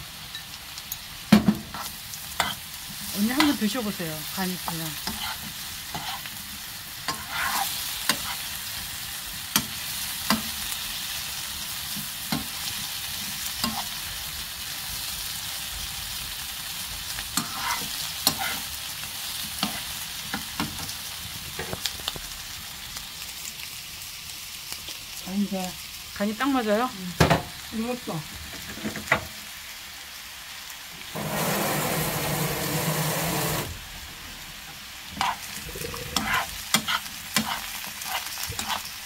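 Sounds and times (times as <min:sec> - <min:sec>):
pumpkin sizzling in oil: 0:00.0 - 0:39.0
metal spoon scraping pan: 0:01.7 - 0:02.6, 0:05.0 - 0:06.3, 0:07.1 - 0:08.5, 0:13.6 - 0:14.0, 0:17.4 - 0:18.7, 0:35.2 - 0:38.9.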